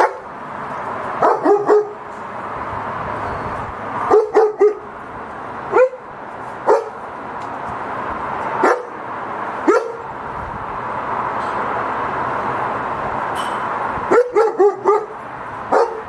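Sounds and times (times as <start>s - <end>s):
dog barking: 0.0s - 0.3s, 1.2s - 2.0s, 4.1s - 4.9s, 5.7s - 6.1s, 6.7s - 7.0s, 8.6s - 9.0s, 9.6s - 10.1s, 14.1s - 16.0s.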